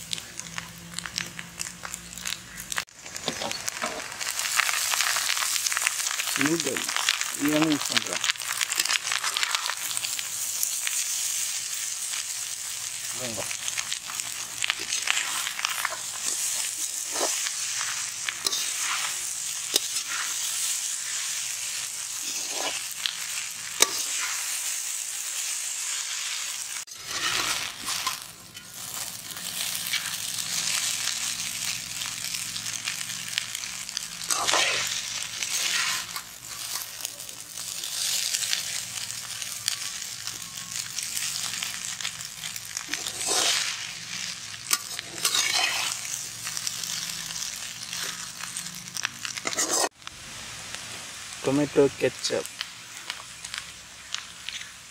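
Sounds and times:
noodles sizzling in a wok: 0:00.0 - 0:54.9
steel ladle scraping a wok: 0:14.2 - 0:21.1, 0:21.7 - 0:22.9, 0:23.7 - 0:24.5, 0:26.9 - 0:30.7, 0:34.2 - 0:37.0, 0:42.8 - 0:46.2, 0:49.3 - 0:50.0.

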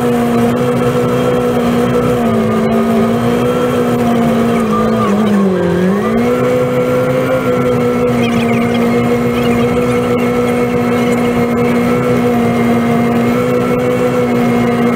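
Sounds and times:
snow blower engine running: 0:00.0 - 0:14.9.

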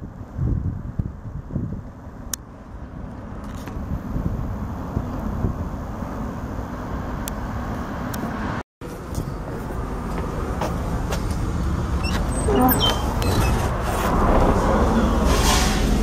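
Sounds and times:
street traffic rumble: 0:00.0 - 0:16.0
door squeak: 0:12.0 - 0:13.8.

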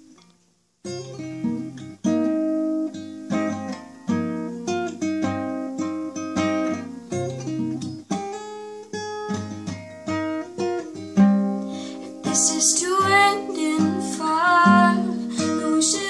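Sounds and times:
acoustic guitar chords: 0:00.0 - 0:16.0.

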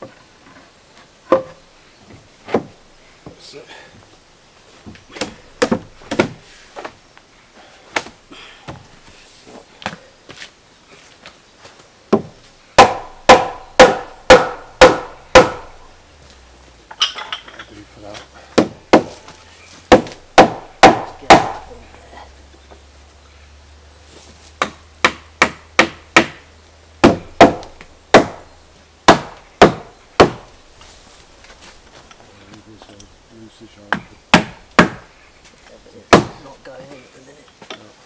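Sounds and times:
mallet knocking wood: 0:12.1 - 0:15.7, 0:19.9 - 0:21.7.

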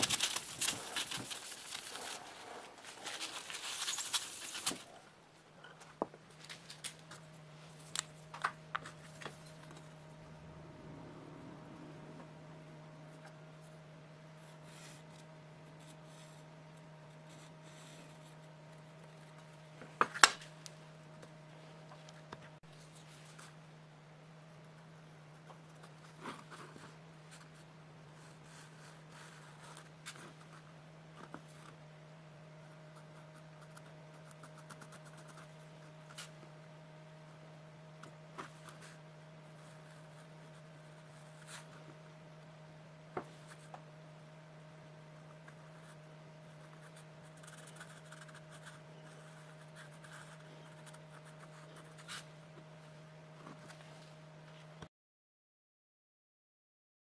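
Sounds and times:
steady low hum: 0:00.0 - 0:54.9.

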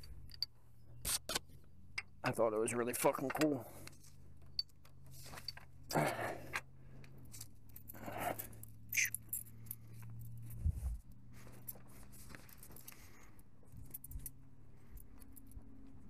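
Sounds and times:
low steady hum: 0:00.0 - 0:16.0
footsteps on leafy dirt path: 0:10.5 - 0:13.2.

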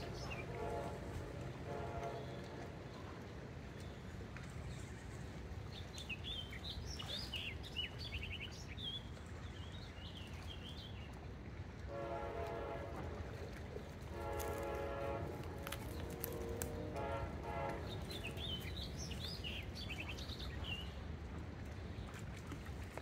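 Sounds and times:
long horn-like tone: 0:00.0 - 0:03.2, 0:11.9 - 0:18.6.

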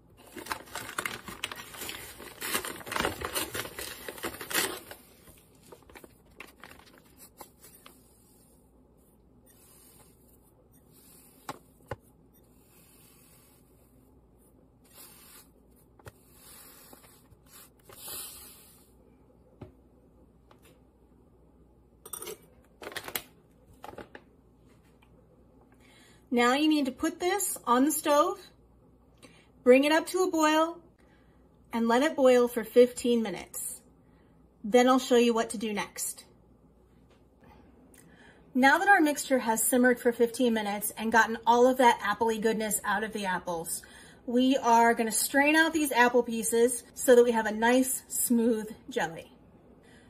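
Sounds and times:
paper bag crinkling: 0:00.2 - 0:08.0.

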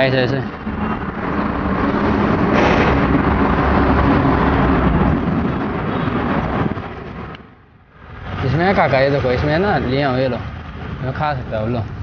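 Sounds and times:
road traffic passing close: 0:00.0 - 0:12.0.

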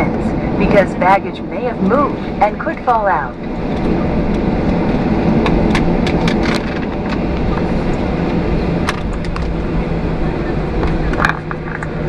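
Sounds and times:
jet engine and airframe rumble: 0:00.0 - 0:12.0.

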